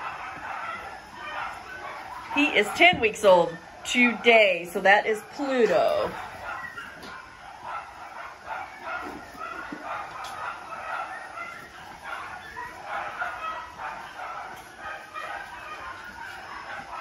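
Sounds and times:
puppies yipping and whining: 0.0s - 17.0s.

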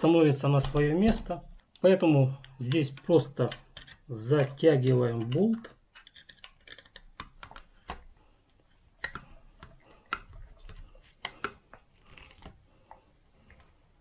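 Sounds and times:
screwdriver clicks and scrapes: 2.4s - 4.6s, 5.2s - 8.0s.

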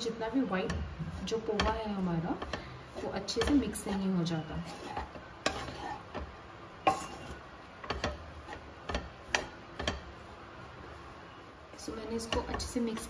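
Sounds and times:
spatula knocking on pan: 0.6s - 4.0s, 7.8s - 10.1s, 12.2s - 13.0s.

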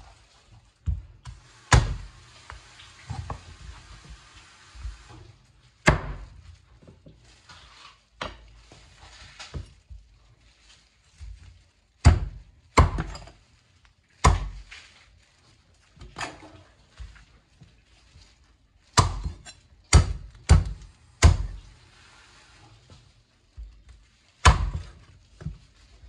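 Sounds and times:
knife chopping on cutting board: 5.8s - 6.3s, 14.2s - 14.7s, 19.0s - 21.6s, 24.4s - 25.5s.

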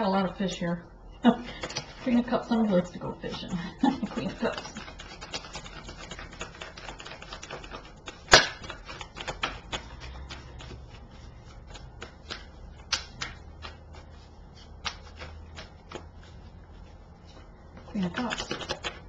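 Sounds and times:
cards being shuffled: 1.5s - 2.2s, 3.9s - 19.0s
sharp card snap: 8.3s - 8.9s, 12.0s - 13.8s, 14.8s - 15.1s.

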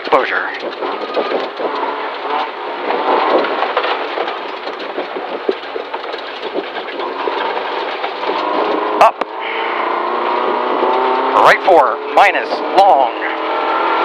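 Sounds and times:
gravel clicking against underbody: 0.0s - 9.3s
rally car engine: 0.0s - 14.0s.

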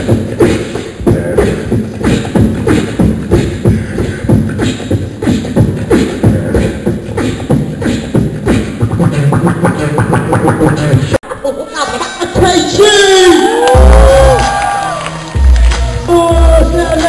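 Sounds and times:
beatboxing into a microphone: 0.0s - 14.6s, 15.4s - 17.0s.

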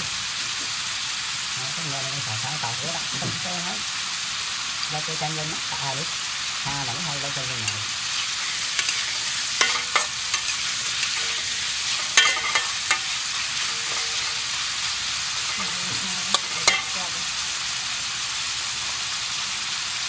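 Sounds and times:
meat sizzling in oil: 0.0s - 20.0s
metal spatula scraping a pan: 7.6s - 17.4s.

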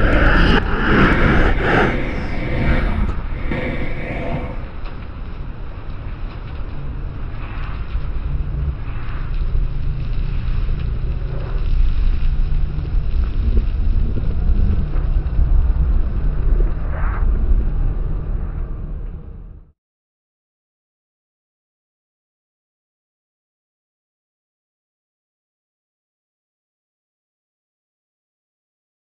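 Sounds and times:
noisy hiss: 0.0s - 5.2s
deep rumbling drone: 0.0s - 19.7s.

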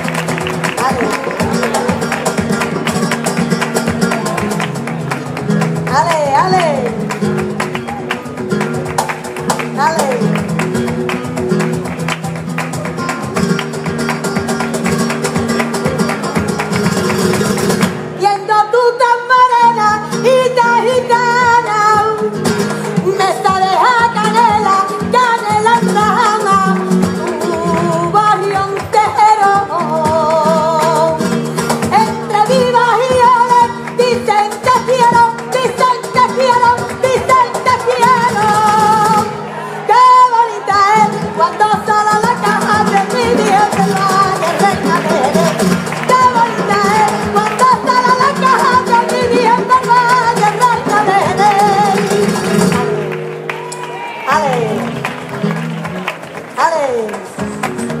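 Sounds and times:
woman singing: 5.8s - 7.0s, 9.6s - 10.6s, 18.1s - 52.9s, 54.1s - 55.0s, 56.6s - 57.4s.

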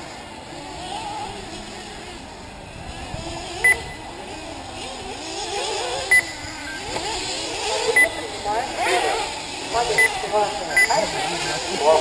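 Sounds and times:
small model car engines whining: 0.0s - 12.0s
high electronic beeps: 3.6s - 4.1s, 6.1s - 6.8s, 8.0s - 8.2s, 9.9s - 11.0s.

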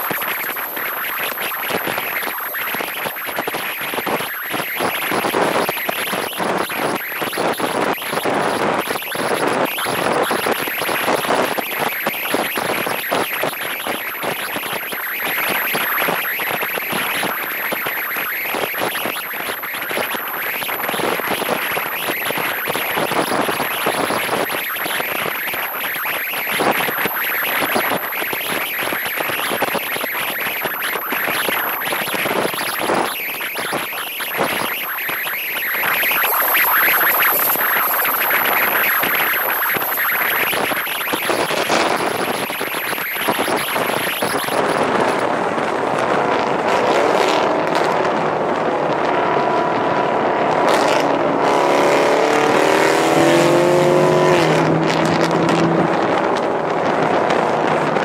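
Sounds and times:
thin high whine: 0.0s - 45.7s.

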